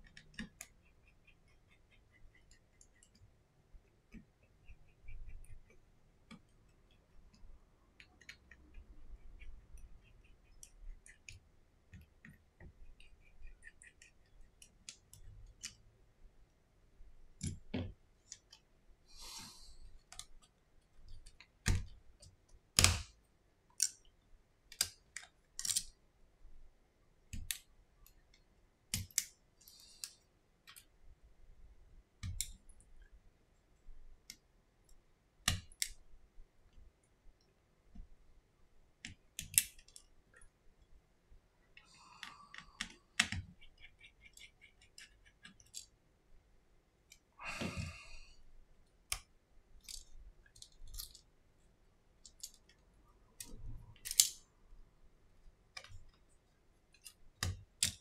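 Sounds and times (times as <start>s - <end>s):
small clicks and taps on plastic: 0.0s - 0.9s, 5.6s - 8.8s, 20.0s - 23.1s, 27.3s - 29.4s, 32.2s - 32.7s, 41.8s - 45.9s, 57.0s - 58.0s.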